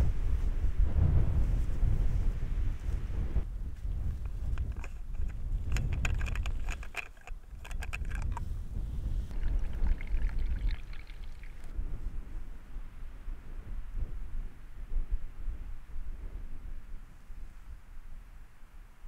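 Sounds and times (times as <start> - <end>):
wind buffeting microphone: 0.0 - 18.5
sharp clicks and rattles: 4.1 - 8.5.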